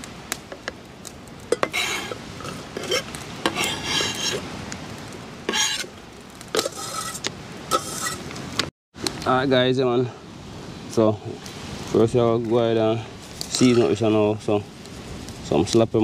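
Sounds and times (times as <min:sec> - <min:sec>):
knife scraping a cutting board: 0:01.6 - 0:04.4, 0:05.5 - 0:05.9, 0:06.6 - 0:08.2.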